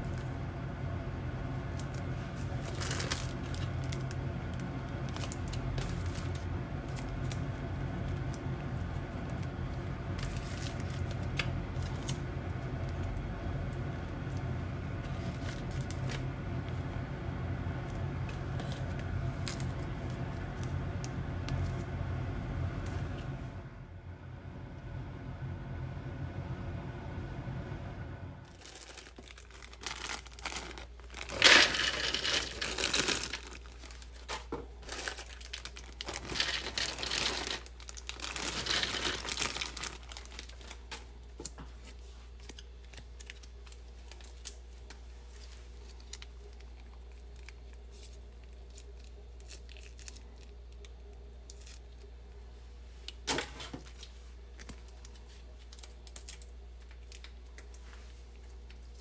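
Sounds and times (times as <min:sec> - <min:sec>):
soft plastic rustling: 0:01.5 - 0:13.2, 0:14.2 - 0:16.9, 0:17.8 - 0:22.0, 0:28.4 - 0:59.0
plastic packets crinkling and tearing: 0:01.6 - 0:13.2, 0:15.0 - 0:16.8, 0:17.9 - 0:21.8, 0:28.5 - 0:52.2, 0:53.0 - 0:59.0
packet tearing: 0:28.5 - 0:41.0.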